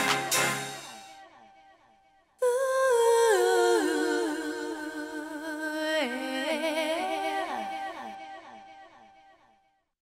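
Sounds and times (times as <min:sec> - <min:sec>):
unaccompanied singing voice: 0:02.4 - 0:09.4.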